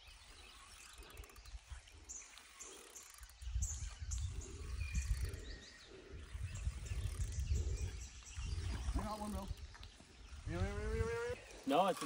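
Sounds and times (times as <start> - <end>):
small birds chirping: 0.0 - 12.0
wind buffeting microphone: 3.2 - 11.5.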